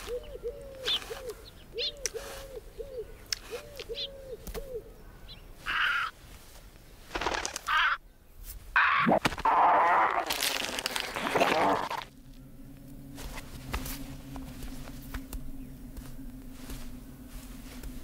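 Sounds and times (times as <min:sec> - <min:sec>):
owl hooting: 0:00.0 - 0:06.2, 0:08.8 - 0:10.2.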